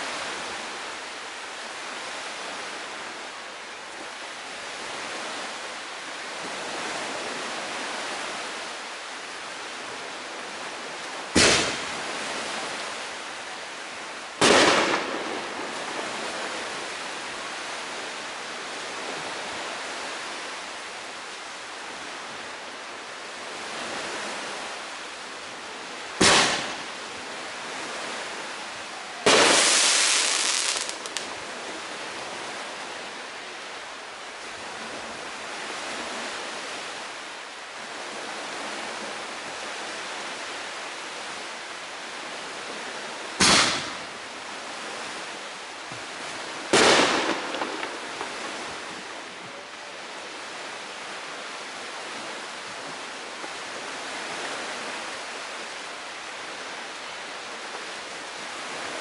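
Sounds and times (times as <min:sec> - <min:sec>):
steady hiss: 0:00.0 - 0:59.0
fireworks bangs: 0:11.4 - 0:12.0, 0:14.4 - 0:16.0, 0:26.2 - 0:26.9, 0:29.2 - 0:31.3, 0:43.4 - 0:44.2, 0:46.7 - 0:49.1.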